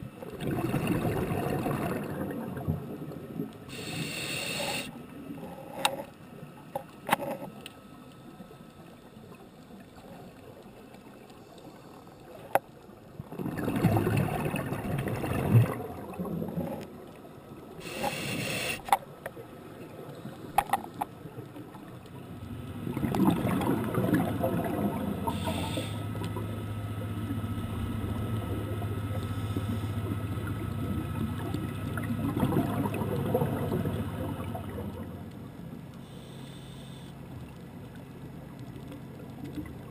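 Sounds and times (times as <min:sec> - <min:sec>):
exhaled air bubbling: 0:00.0 - 0:04.9, 0:13.2 - 0:17.0, 0:22.7 - 0:26.6, 0:27.2 - 0:35.2
low steady hum: 0:00.0 - 0:39.9
scuba regulator inhale hiss: 0:03.7 - 0:05.0, 0:17.8 - 0:18.9, 0:25.2 - 0:26.2, 0:36.0 - 0:37.2.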